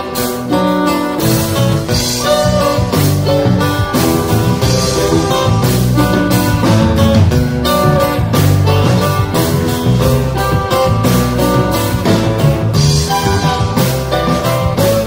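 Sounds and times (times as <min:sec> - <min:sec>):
bass: 0:00.0 - 0:15.0
drum kit: 0:00.0 - 0:15.0
plucked and strummed guitar: 0:00.0 - 0:15.0
string band playing: 0:00.0 - 0:15.0.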